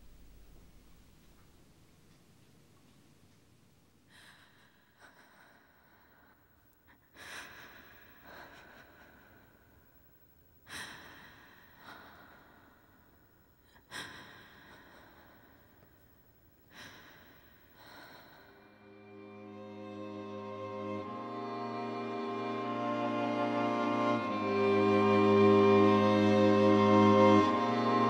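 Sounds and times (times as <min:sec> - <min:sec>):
person breathing sharply: 0:04.1 - 0:09.9, 0:10.6 - 0:18.9
music with held notes: 0:18.8 - 0:28.0.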